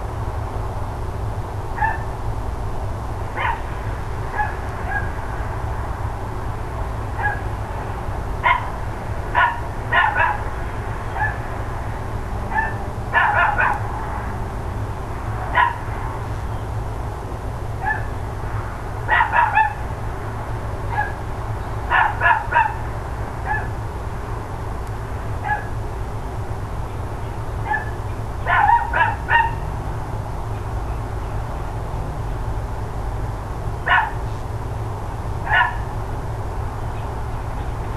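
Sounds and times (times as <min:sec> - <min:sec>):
dogs barking: 0:01.8 - 0:02.1, 0:03.3 - 0:05.2, 0:07.1 - 0:07.6, 0:08.4 - 0:11.5, 0:12.5 - 0:14.0, 0:15.4 - 0:16.1, 0:17.8 - 0:18.2, 0:19.1 - 0:19.9, 0:20.9 - 0:23.8, 0:25.4 - 0:25.8, 0:27.6 - 0:29.7, 0:33.8 - 0:34.3, 0:35.4 - 0:36.0.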